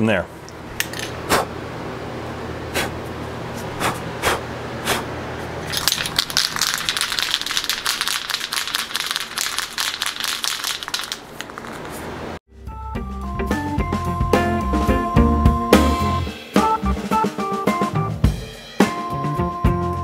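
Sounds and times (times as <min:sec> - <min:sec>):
ventilation fans humming: 0:00.0 - 0:12.4
aerosol can mixing ball rattling: 0:05.7 - 0:12.1.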